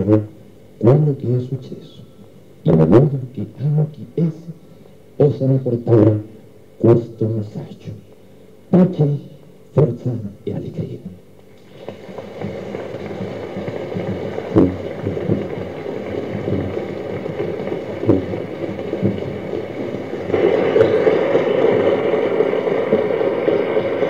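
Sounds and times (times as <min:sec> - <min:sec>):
audience applause: 0:11.6 - 0:24.0.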